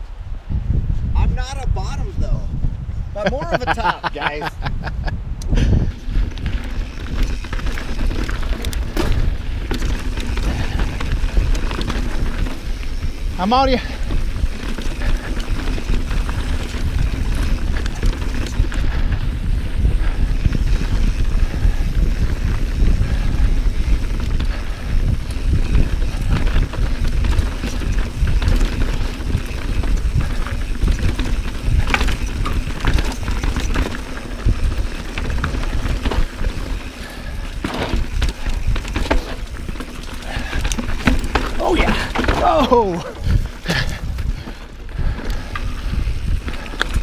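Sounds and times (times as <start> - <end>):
wind buffeting microphone: 0.0 - 47.0
tyres rolling over dirt and rock: 6.1 - 47.0
bike rattling knocks: 6.4 - 12.8, 22.4 - 45.4.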